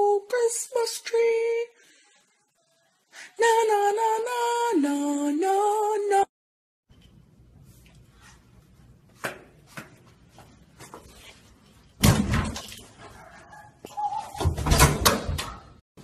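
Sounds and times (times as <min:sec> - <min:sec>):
door slamming shut: 0:12.0 - 0:12.6, 0:14.4 - 0:15.7.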